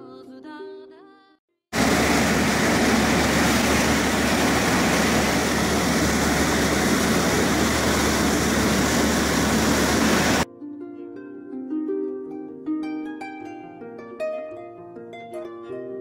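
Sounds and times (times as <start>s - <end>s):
churning wake rushing: 1.8s - 10.4s
motorboat engine running: 1.8s - 10.4s
wind: 1.8s - 10.5s.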